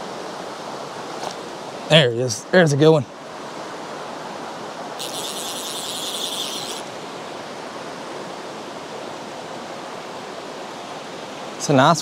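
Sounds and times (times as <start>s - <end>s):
river flowing: 0.0s - 12.0s
high hissing buzz: 4.8s - 8.7s.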